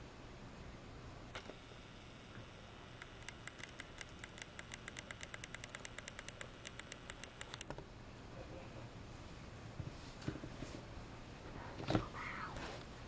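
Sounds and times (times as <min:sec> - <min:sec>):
rapid mechanical clicking: 0:02.9 - 0:07.7.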